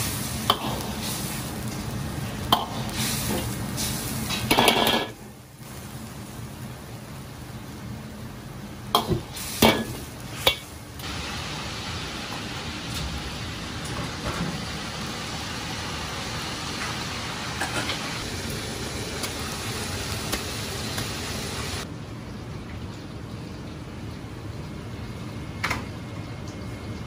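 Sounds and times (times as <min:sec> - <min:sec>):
soup boiling hiss: 0:00.0 - 0:13.8, 0:14.7 - 0:21.9
metal clanks against wok: 0:04.3 - 0:05.2.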